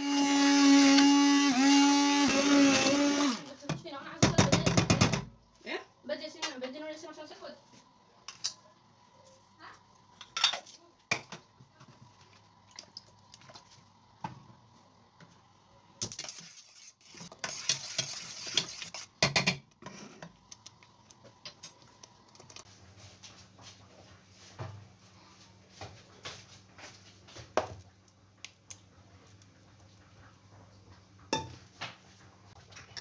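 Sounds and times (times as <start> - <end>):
metal spoon scraping pot: 16.2 - 20.3.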